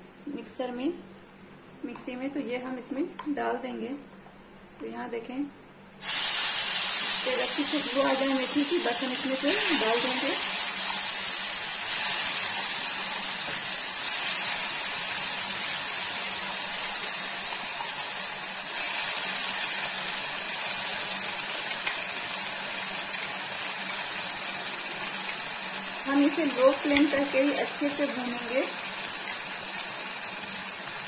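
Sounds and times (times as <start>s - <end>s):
spice paste sizzling in hot oil: 6.0s - 31.0s.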